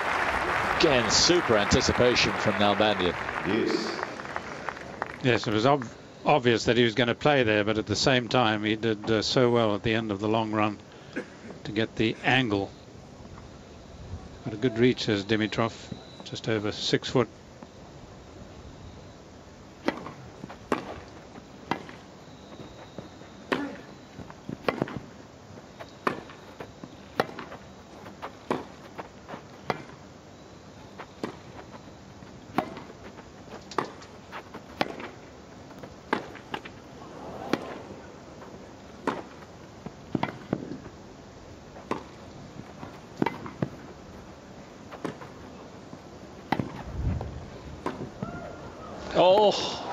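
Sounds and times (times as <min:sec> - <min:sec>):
tennis ball struck by rackets: 0:19.8 - 0:21.1, 0:24.6 - 0:25.0, 0:27.1 - 0:27.6, 0:28.5 - 0:28.8, 0:32.5 - 0:33.0, 0:33.7 - 0:35.2, 0:36.1 - 0:38.1, 0:39.0 - 0:39.4, 0:40.1 - 0:40.8, 0:41.8 - 0:42.1, 0:43.2 - 0:43.8, 0:46.5 - 0:46.8.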